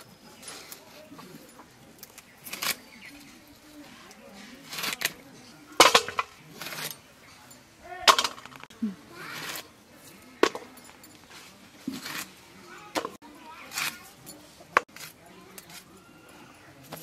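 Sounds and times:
blade cutting gourd: 4.6 - 5.2, 11.9 - 14.0.

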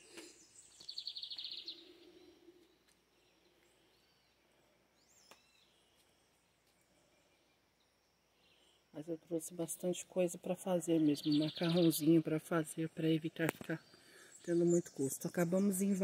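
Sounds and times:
faint click: 5.2 - 5.5.

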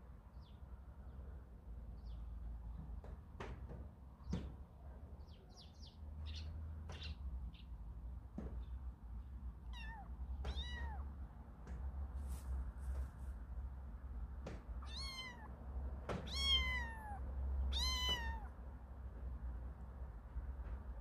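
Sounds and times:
kitten mewing: 9.7 - 11.1, 14.8 - 15.6, 16.2 - 18.6.

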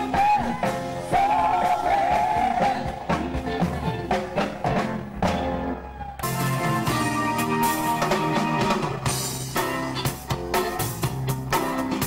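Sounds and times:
live rock band: 0.0 - 12.0
steady drum beat: 0.0 - 12.0.

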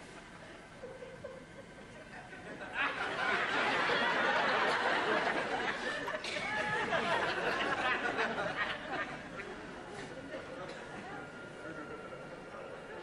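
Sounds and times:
studio audience laughter: 0.8 - 9.9.

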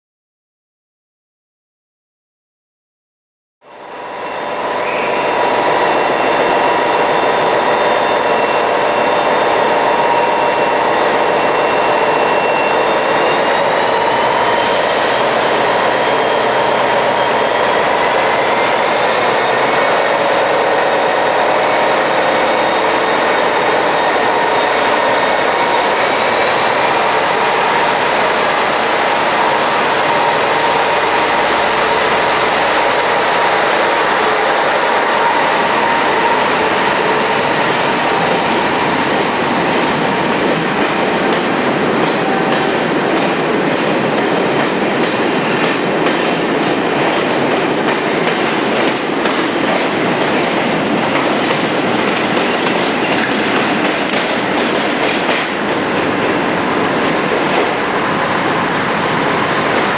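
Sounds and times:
diesel locomotive engine under power: 3.9 - 59.9
rising whining tones: 4.0 - 41.3.

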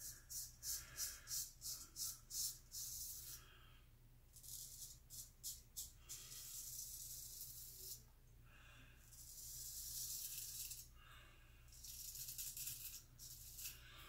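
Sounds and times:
razor scraping stubble: 11.7 - 13.9.

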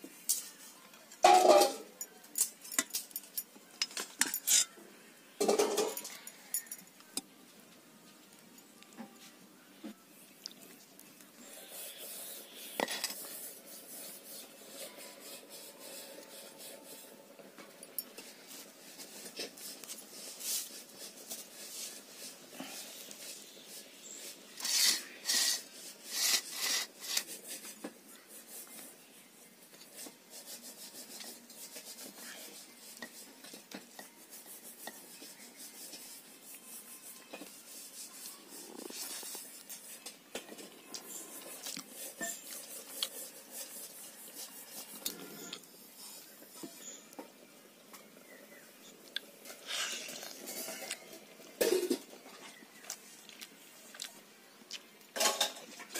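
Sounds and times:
hands scraping rice on plate: 11.4 - 17.2, 18.0 - 28.8, 29.8 - 47.0.

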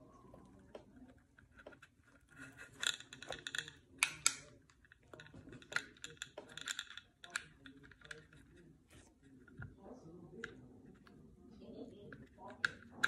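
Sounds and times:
metallic pistol parts rattling: 2.4 - 8.3.

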